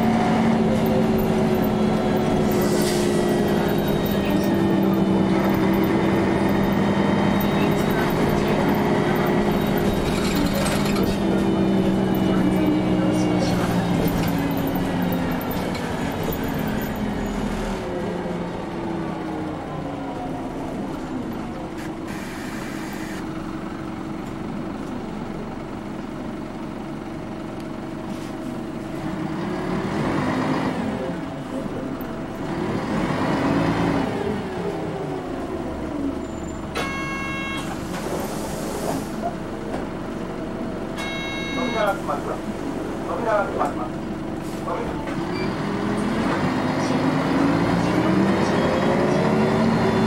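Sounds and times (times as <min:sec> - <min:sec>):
bus diesel engine revving: 0:00.0 - 0:25.3, 0:27.4 - 0:50.0
short electronic chime: 0:41.0 - 0:41.9.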